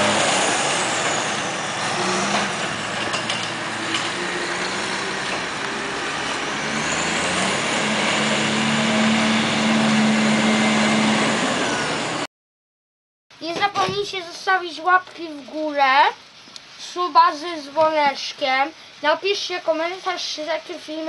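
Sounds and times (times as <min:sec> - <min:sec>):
truck diesel engine running hard: 0:00.0 - 0:12.3.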